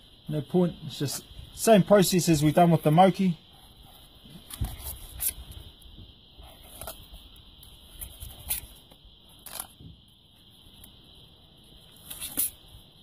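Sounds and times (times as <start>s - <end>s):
faint hiss: 0.0s - 13.0s.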